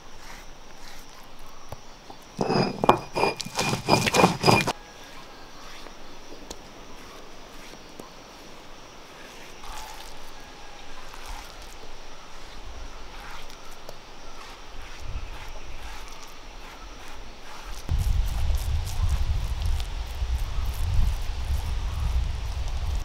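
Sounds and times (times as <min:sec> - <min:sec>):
outdoor background: 0:00.0 - 0:23.0
scraping paste on stone: 0:02.2 - 0:04.8, 0:12.4 - 0:18.6.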